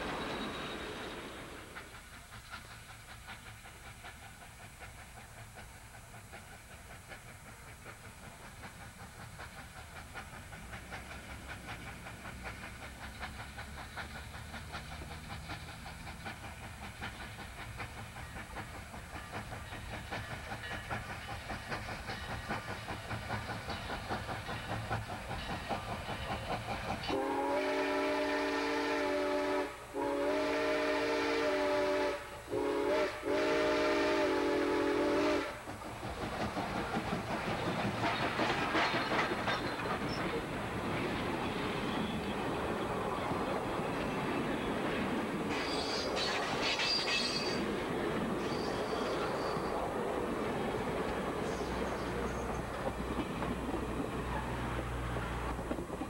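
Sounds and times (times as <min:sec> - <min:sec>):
steam locomotive exhaust chuffing: 0:00.0 - 0:56.0
steam whistle blast: 0:27.1 - 0:35.6.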